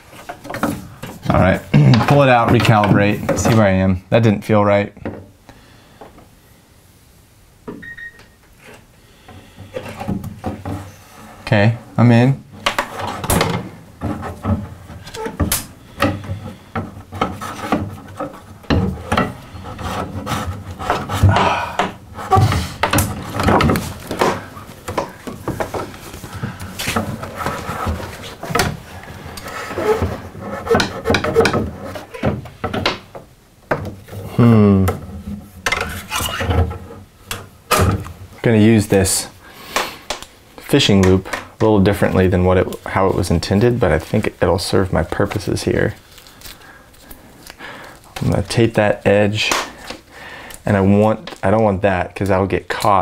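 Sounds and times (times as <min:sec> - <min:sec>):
stick scraping against wood: 0:14.0 - 0:32.3
rustle of gloved hands: 0:23.7 - 0:30.3.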